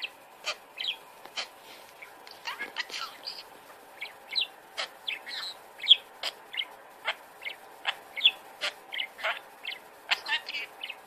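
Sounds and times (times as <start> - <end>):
budgerigar chattering: 2.4 - 11.0.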